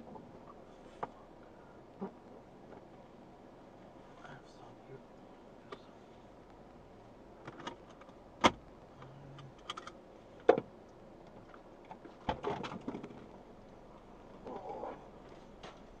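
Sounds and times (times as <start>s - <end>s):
clicks and knocks in car cabin: 7.4s - 10.7s, 11.5s - 13.3s.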